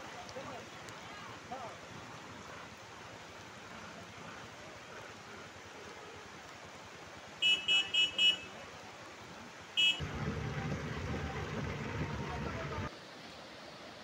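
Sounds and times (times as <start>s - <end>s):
heavy rain hissing: 0.0s - 13.0s
vehicle horn toots: 7.4s - 8.5s, 9.8s - 10.4s
low rumble: 10.0s - 12.9s.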